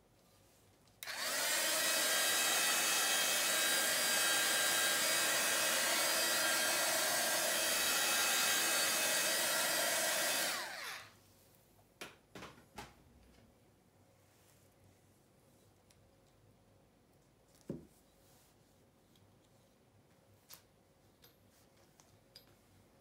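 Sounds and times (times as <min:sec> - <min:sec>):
heat gun fan whining: 0:01.0 - 0:11.2.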